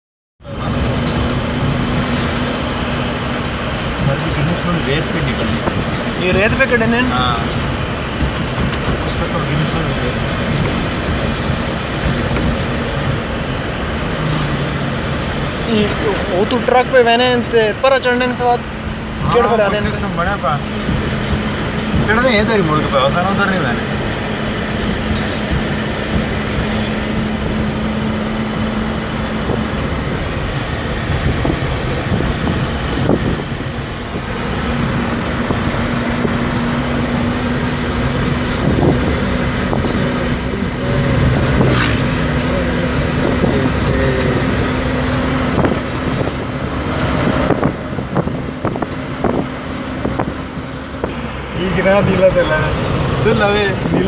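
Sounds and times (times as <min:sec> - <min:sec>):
car engine humming: 0:00.4 - 0:54.0
road and wind noise: 0:00.4 - 0:54.0
knocks and rattles: 0:00.8 - 0:06.6, 0:07.4 - 0:14.9, 0:23.8 - 0:28.5.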